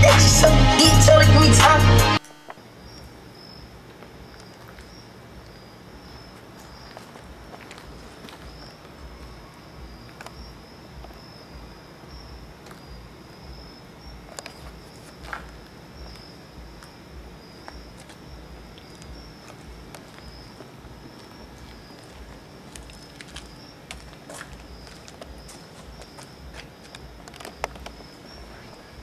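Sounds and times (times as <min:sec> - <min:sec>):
night insects trilling: 0:02.2 - 0:29.0
low pulsing throb: 0:07.2 - 0:29.0
small clicks and taps: 0:22.7 - 0:28.0.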